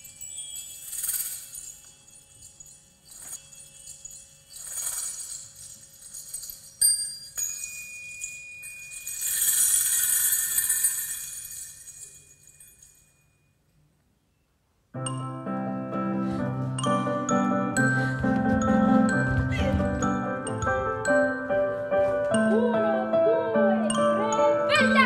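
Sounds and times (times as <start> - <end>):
jingling bell-like tones: 0.0 - 13.6, 23.8 - 25.0.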